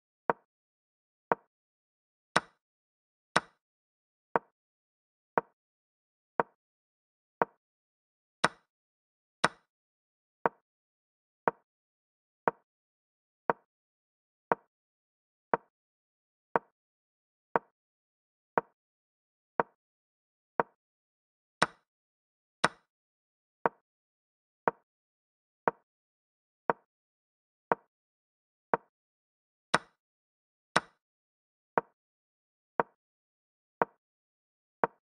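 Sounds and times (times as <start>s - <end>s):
wooden click of chess moves: 8.4s - 8.7s, 9.4s - 9.7s, 22.6s - 22.9s, 30.8s - 31.0s.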